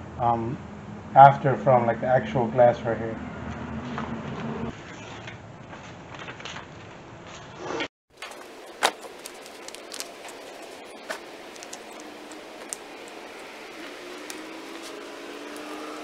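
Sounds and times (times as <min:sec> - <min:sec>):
film rustling against glass: 0:08.1 - 0:16.0.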